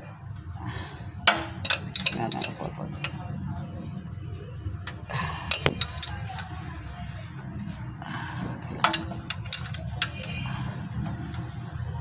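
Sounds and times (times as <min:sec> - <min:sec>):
steady low hum: 0:00.0 - 0:12.0
metallic wrench clicks: 0:01.3 - 0:03.4, 0:04.8 - 0:06.6, 0:08.8 - 0:10.5.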